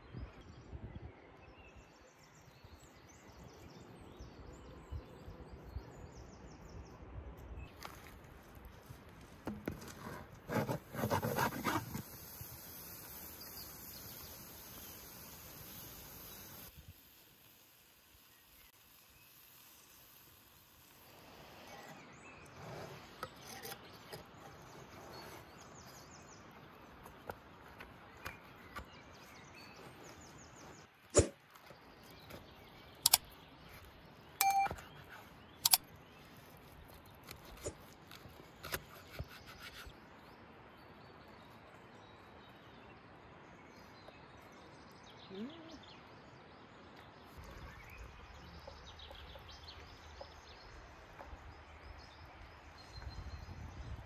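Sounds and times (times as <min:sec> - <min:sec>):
faint bird chirps: 0:43.8 - 0:46.4.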